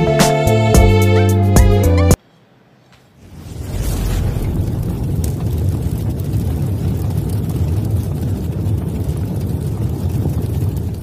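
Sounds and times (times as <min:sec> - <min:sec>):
deep steady rumbling: 0:03.2 - 0:11.0.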